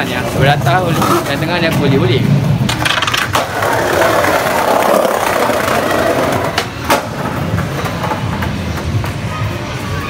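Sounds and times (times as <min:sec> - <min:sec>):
skateboard wheels rolling on tiles: 0:00.0 - 0:10.0
skateboard clacks: 0:02.6 - 0:09.4.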